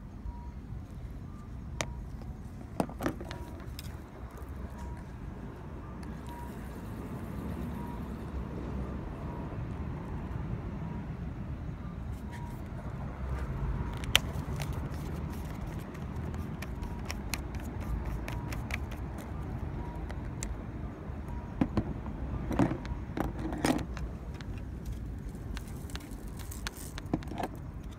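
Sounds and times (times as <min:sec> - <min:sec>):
low outdoor rumble: 0:00.0 - 0:27.9
fishing rod clicks and rattles: 0:13.9 - 0:19.4, 0:22.5 - 0:27.9.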